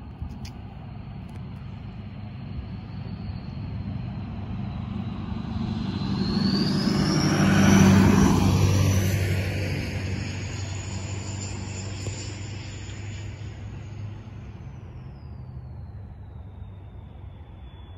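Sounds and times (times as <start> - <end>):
truck driving past: 2.0 - 14.8.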